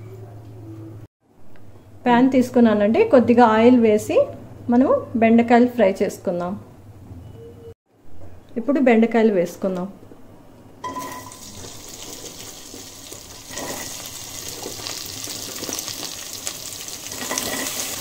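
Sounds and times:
okra sizzling in hot oil: 0:10.8 - 0:18.0.

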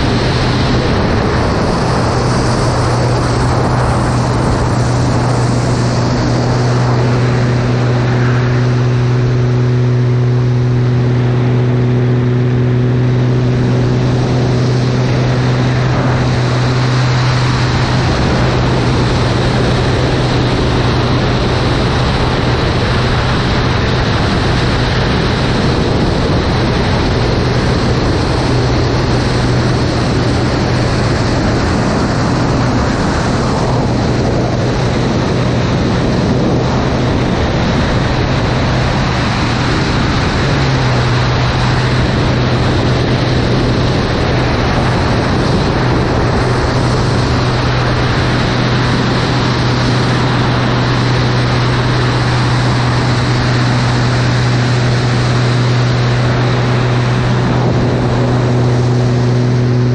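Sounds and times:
airflow rushing over microphone: 0:00.0 - 0:59.9
airplane propeller engine droning: 0:00.0 - 0:59.9.

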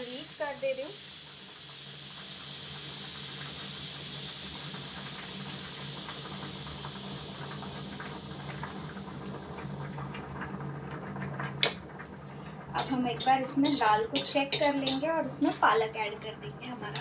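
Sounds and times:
steam hissing from pressure cooker: 0:00.0 - 0:10.0, 0:12.8 - 0:16.0.

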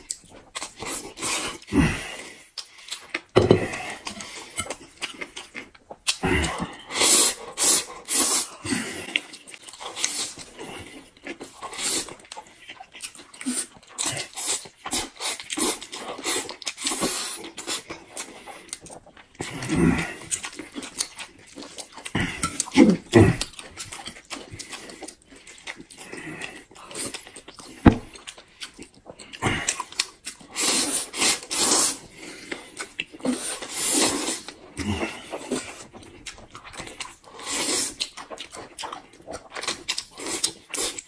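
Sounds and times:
people slurping noodles: 0:06.1 - 0:12.2, 0:13.4 - 0:18.7, 0:29.4 - 0:35.9, 0:37.3 - 0:38.0.

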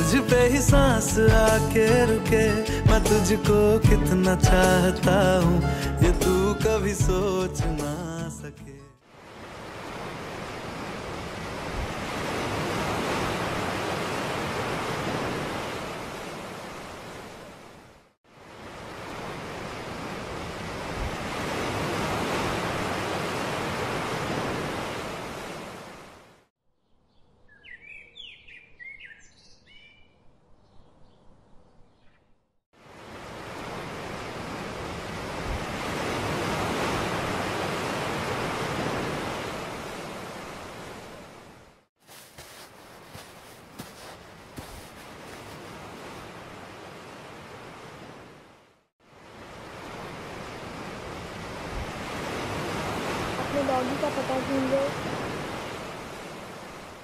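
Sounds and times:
surf washing onto sandy beach: 0:09.3 - 0:17.4, 0:18.6 - 0:26.0, 0:32.8 - 0:41.1, 0:42.0 - 0:48.2, 0:49.5 - 0:56.9
birds chirping: 0:26.8 - 0:32.4.

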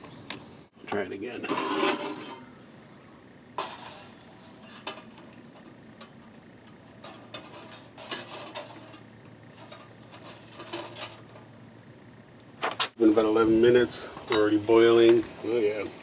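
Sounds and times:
metal clinks and scrapes: 0:01.4 - 0:02.5, 0:03.6 - 0:11.5.

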